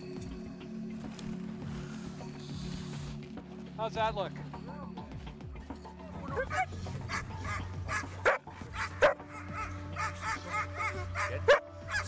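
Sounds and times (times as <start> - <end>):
background music: 0.0 - 12.0
dog barking sharply: 6.4 - 10.1
dog whining and yipping: 6.4 - 12.0.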